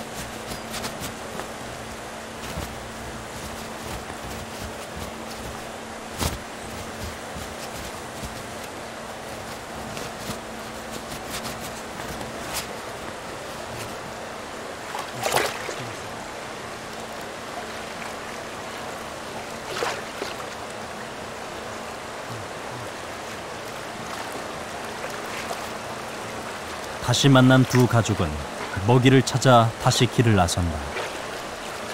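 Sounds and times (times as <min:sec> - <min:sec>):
stream water running: 0:00.0 - 0:31.9
animal splashing into water: 0:14.9 - 0:16.0.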